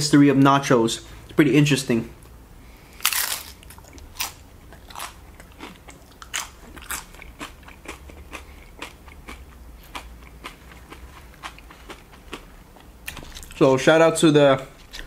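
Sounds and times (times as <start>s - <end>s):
person chewing crunchy chip: 2.9s - 13.6s.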